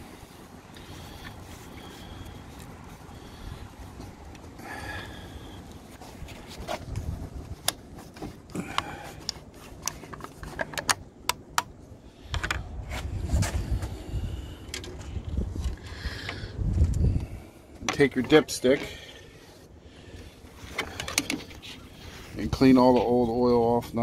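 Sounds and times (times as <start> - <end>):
plastic clicks and scrapes: 7.6 - 11.7.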